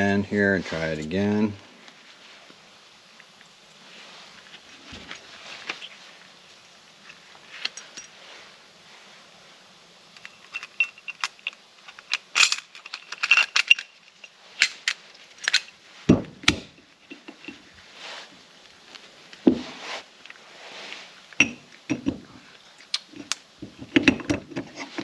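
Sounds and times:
metal parts clinking: 10.2s - 15.8s, 16.5s - 17.6s
heavy thuds on bench: 16.1s - 16.7s.

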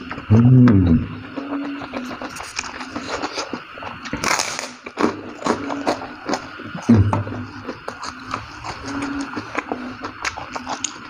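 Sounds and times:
person humming: 0.2s - 1.2s
wet chewing and lip smacks: 7.8s - 11.0s.

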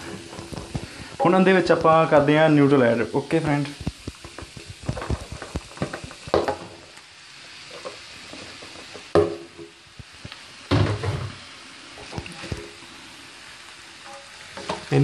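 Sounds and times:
vegetables sizzling in a frying pan: 0.0s - 15.0s
knocks on pan: 4.1s - 6.8s, 8.9s - 9.7s, 10.7s - 11.4s.

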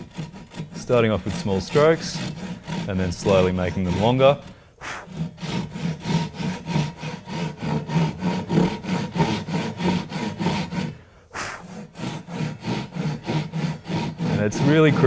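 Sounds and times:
hand saw rasping through wood: 0.0s - 15.0s.

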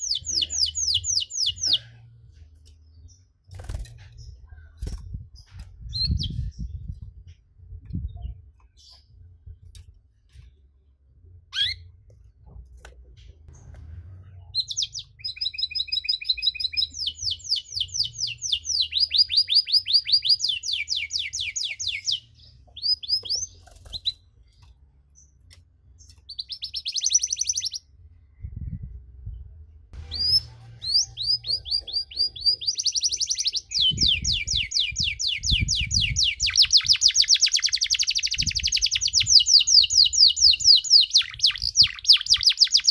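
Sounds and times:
canary trilling: 0.0s - 1.7s, 11.5s - 11.9s, 30.0s - 42.9s
low rumble: 12.0s - 15.0s, 27.9s - 32.5s.

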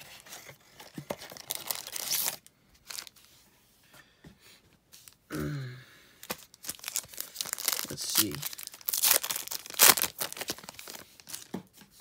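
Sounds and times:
plastic-wrapped packs crinkling: 0.8s - 3.2s, 6.2s - 11.5s
person vocal sound: 5.3s - 6.1s.

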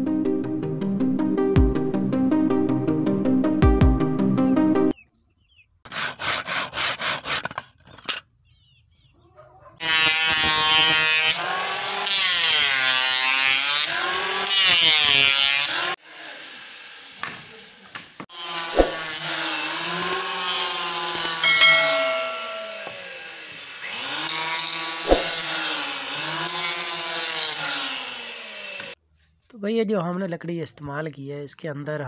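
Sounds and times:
electric planer cutting wood: 9.8s - 29.0s.

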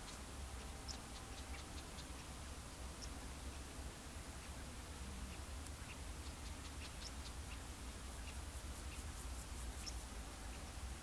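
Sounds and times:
bird chirps: 0.0s - 2.3s, 5.3s - 10.7s.

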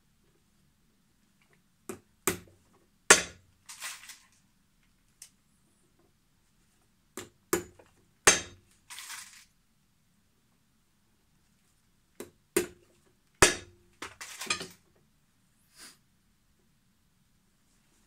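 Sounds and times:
rustling scrape: 3.7s - 4.4s, 8.9s - 9.5s.

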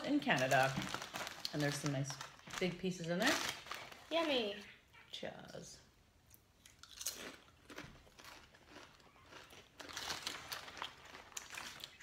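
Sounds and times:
people crunching potato chips: 0.0s - 4.4s, 6.6s - 12.0s.

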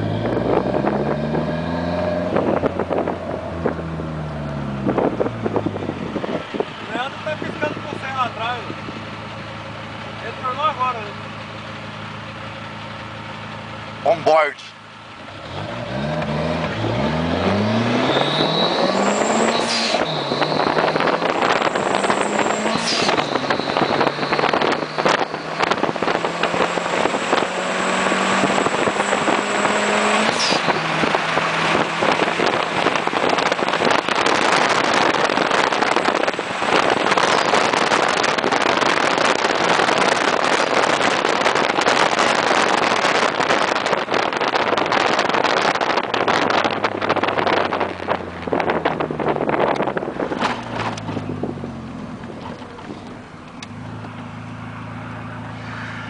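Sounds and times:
car engine accelerating: 0.0s - 56.0s
wind and road noise: 0.0s - 56.0s
high thin turbo whistle: 18.1s - 20.9s.

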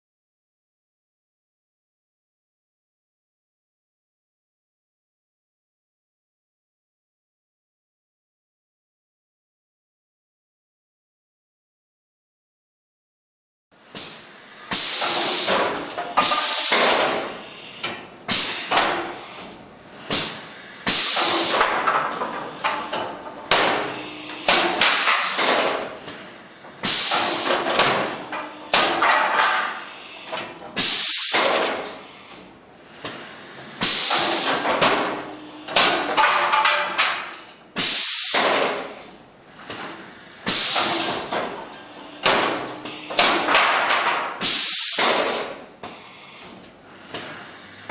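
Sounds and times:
knock and hiss: 20.1s - 22.9s, 23.5s - 26.2s, 26.8s - 28.1s, 33.0s - 36.0s, 37.8s - 38.9s, 39.7s - 41.5s, 42.2s - 47.9s.

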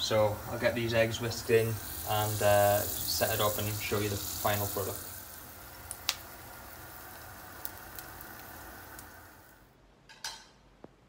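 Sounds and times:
eggs sizzling in a pan: 0.0s - 9.8s.

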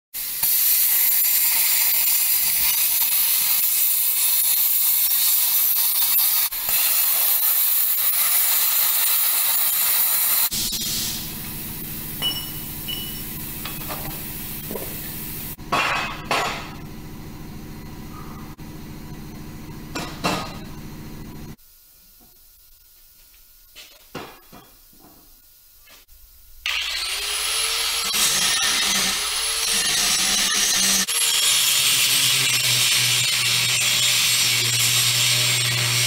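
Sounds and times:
welding arc crackling and hissing: 0.2s - 15.6s, 20.7s - 36.0s
steady low hum: 10.5s - 21.6s.

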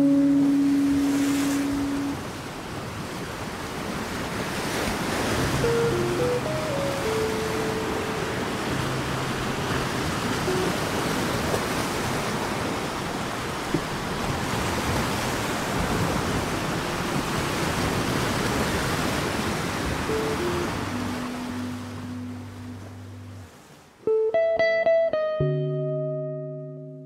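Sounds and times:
soft held music notes: 0.0s - 2.2s, 5.5s - 10.8s, 20.1s - 27.0s
ocean surf rushing: 0.0s - 25.0s.

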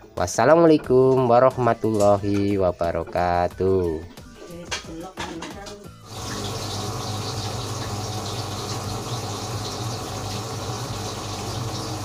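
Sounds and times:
drain pump pumping water: 6.1s - 12.0s
washing machine drum spinning: 6.1s - 12.0s.

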